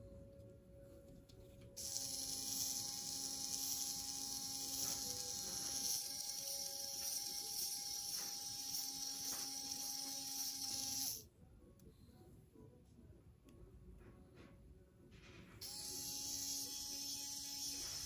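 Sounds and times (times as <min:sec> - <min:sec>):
small gear motor whining: 0:01.8 - 0:11.2, 0:15.6 - 0:18.0.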